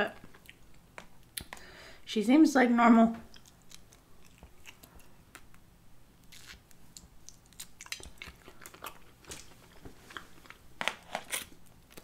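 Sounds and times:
person chewing crunchy food: 3.3 - 5.6, 6.2 - 12.0.

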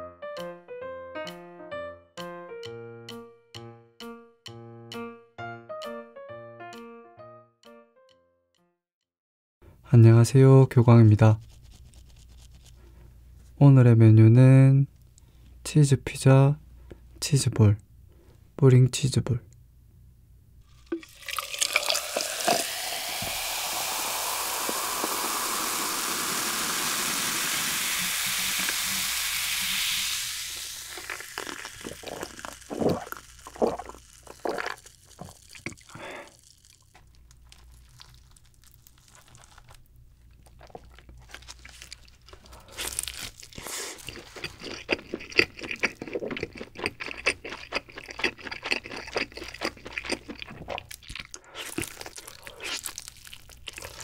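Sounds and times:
cola pouring and fizzing: 20.7 - 38.5
gulps of drinking: 30.9 - 36.4
pizza slice pulled crackling: 30.9 - 46.1.

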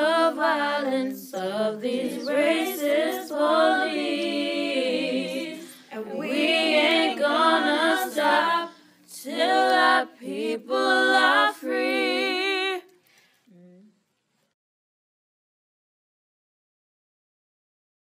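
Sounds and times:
choir singing a cappella: 0.0 - 13.0.

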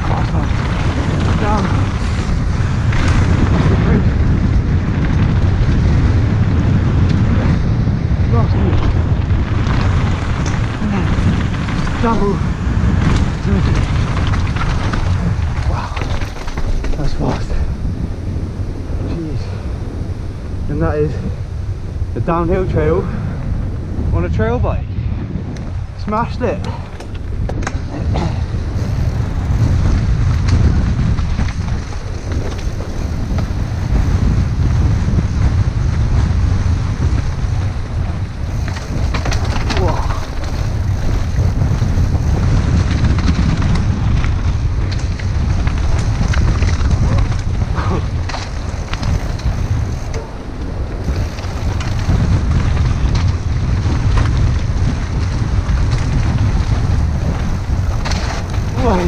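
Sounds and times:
tyres rumbling on dirt trail: 0.0 - 59.0
wind rushing over microphone: 0.0 - 59.0
faint bike clicks: 26.6 - 59.0.

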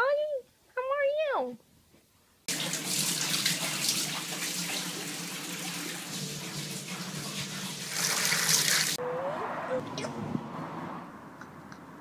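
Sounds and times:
water running into a bathtub: 2.5 - 9.0.

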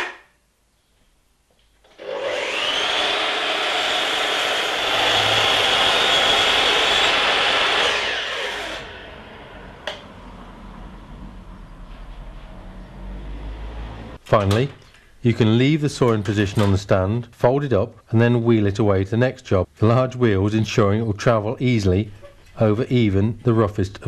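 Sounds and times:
mitre saw cutting wood: 1.9 - 10.0.

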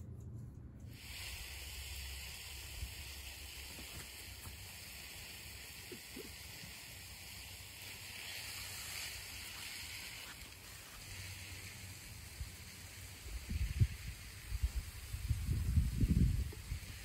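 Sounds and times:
faint outdoor hiss: 0.0 - 17.0
wind rumble on microphone: 13.2 - 17.0.

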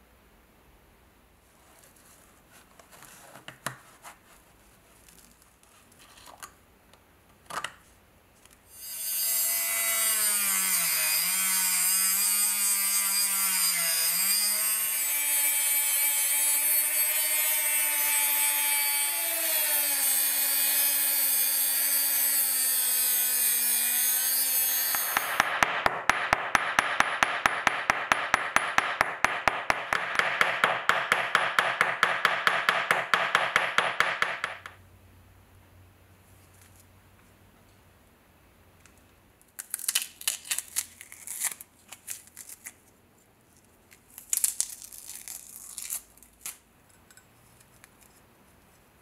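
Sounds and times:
rotary tool cutting metal: 8.7 - 25.5.

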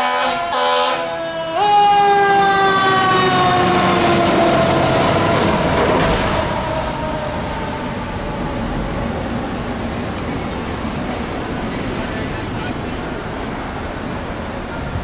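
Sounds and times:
fire truck air horn blast: 0.0 - 3.8
fire truck siren winding down: 0.0 - 10.0
street traffic: 0.0 - 15.0.

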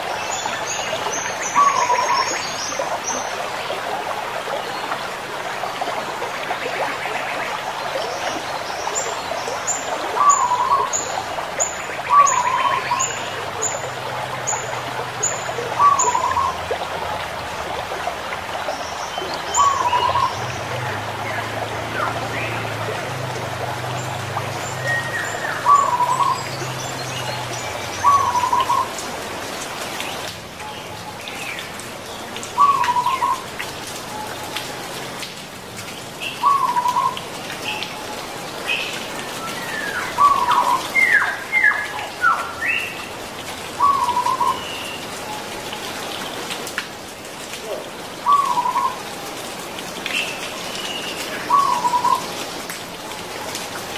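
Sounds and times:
dove cooing in trilled phrases: 15.7 - 16.6
small birds chirping: 18.6 - 22.7, 23.9 - 29.1, 35.8 - 45.2, 47.6 - 49.1, 49.9 - 52.4.

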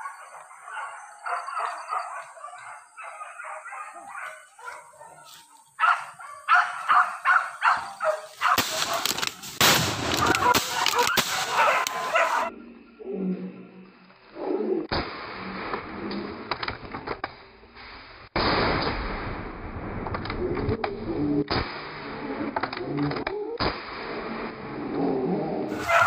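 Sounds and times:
dogs yelping and barking: 0.0 - 9.4, 10.1 - 12.8, 25.7 - 26.0
rustling and crashing of brush: 8.3 - 12.4.

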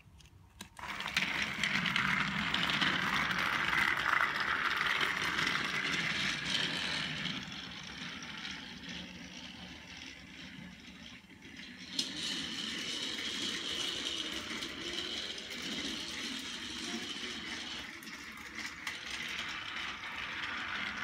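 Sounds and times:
toy train motor whirring: 0.0 - 21.0.

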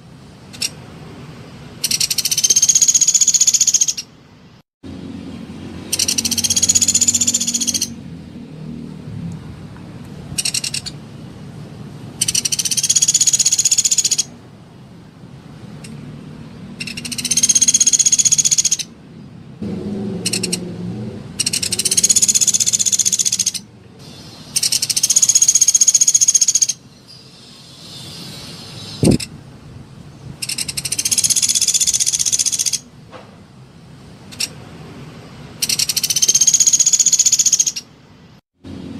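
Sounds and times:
woodpecker rattling trills: 0.5 - 0.8, 1.8 - 4.1, 5.8 - 8.0, 10.4 - 11.0, 12.2 - 14.3, 16.8 - 18.9, 20.3 - 20.6, 21.4 - 23.7, 24.5 - 26.8, 30.4 - 32.8, 35.6 - 37.9.

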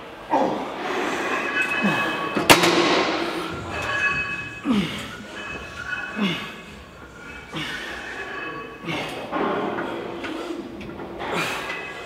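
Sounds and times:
sharp metal clank: 1.4 - 4.6.

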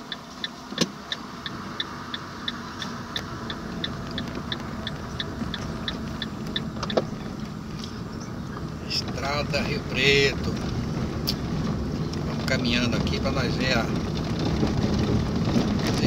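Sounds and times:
regular high ticking: 0.0 - 7.5
car driving on dirt road: 0.0 - 16.0.

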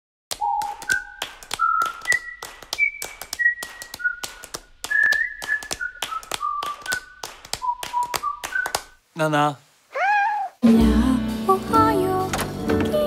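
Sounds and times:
person whistling a tune: 0.4 - 8.9.

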